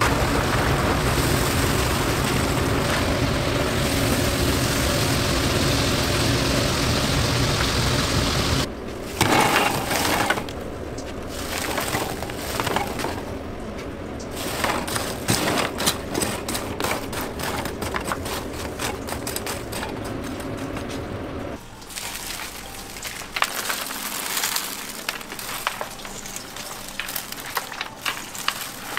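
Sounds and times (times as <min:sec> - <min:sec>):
loud rush of noise: 0:00.0 - 0:21.7
kitchen burner roaring: 0:00.0 - 0:28.9
fried food clattering on wire rack: 0:09.2 - 0:10.5, 0:11.3 - 0:13.4, 0:14.2 - 0:21.1, 0:21.8 - 0:28.9.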